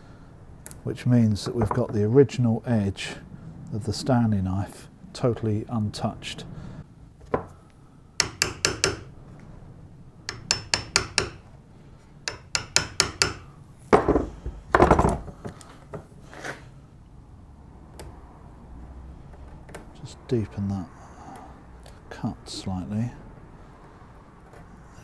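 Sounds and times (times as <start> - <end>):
chisel paring wood clicks: 8.2 - 9.0, 10.3 - 11.4
heavy knocks: 12.3 - 16.1.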